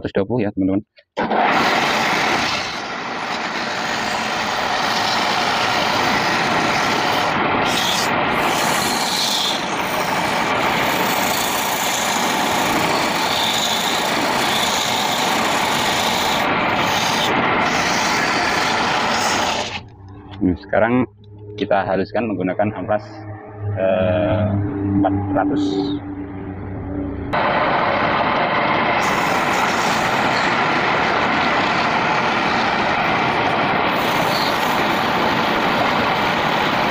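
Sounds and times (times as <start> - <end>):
sandpaper rasping on spinning wood: 10.9 - 19.8.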